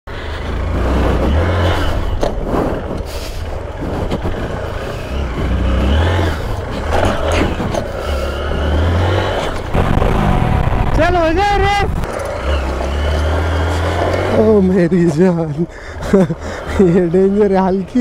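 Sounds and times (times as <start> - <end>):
dirt bike engine revving: 0.1 - 18.0
wind rumbling on microphone: 9.2 - 12.1.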